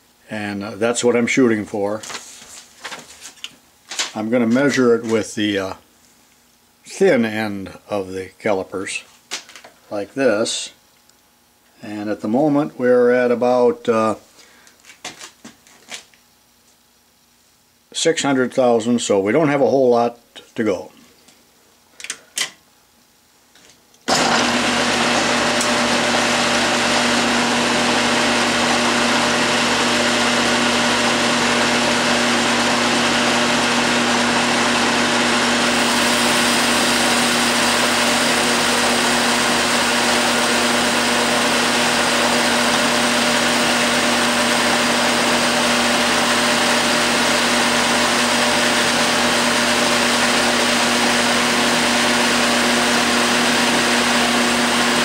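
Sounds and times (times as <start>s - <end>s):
metal lathe humming: 24.1s - 55.0s.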